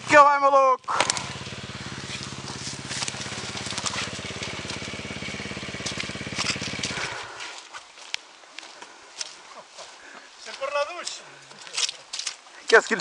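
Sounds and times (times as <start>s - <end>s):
dirt bike engine idling: 0.0s - 11.5s
short crackles: 0.9s - 8.8s.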